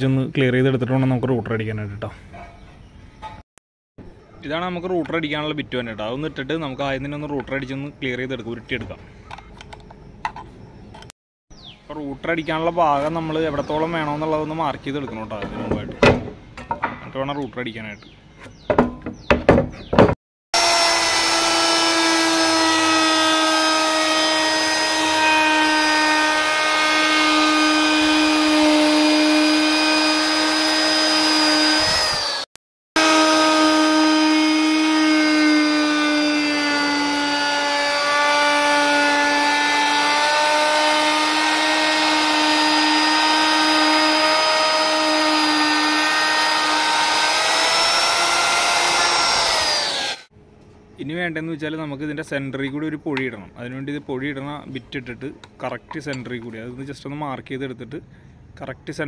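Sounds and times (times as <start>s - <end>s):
router whining: 20.6s - 50.3s.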